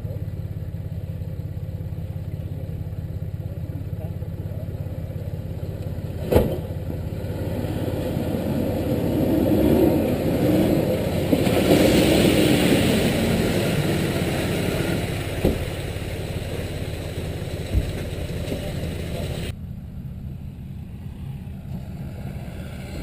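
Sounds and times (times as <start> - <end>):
four-wheel drive engine running: 0.0 - 23.0
water splashing from wheels: 5.4 - 19.5
sharp knocks: 15.4 - 15.8.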